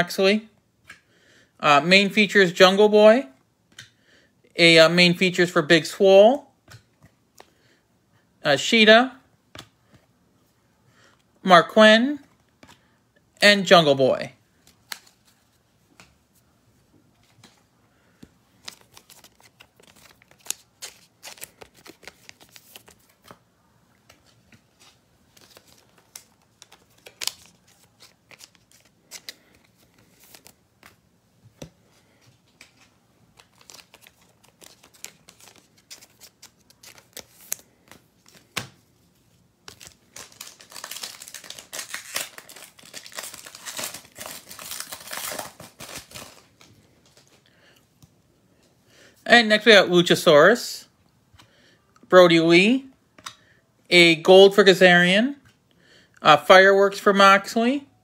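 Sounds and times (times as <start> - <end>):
wrapper crinkling and tearing: 18.6 - 23.2, 25.3 - 30.6, 32.7 - 38.5, 39.6 - 47.3.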